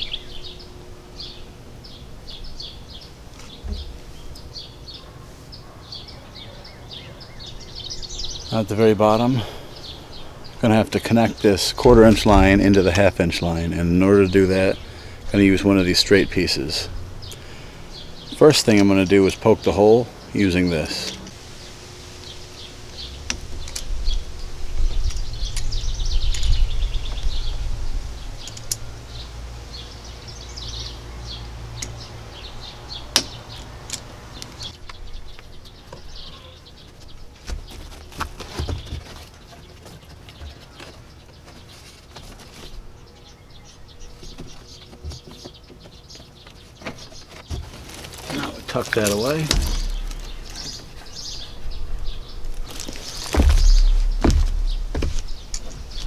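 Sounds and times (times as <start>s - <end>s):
small birds chirping: 0.0s - 56.0s
low rumble: 11.8s - 13.6s, 53.2s - 56.0s.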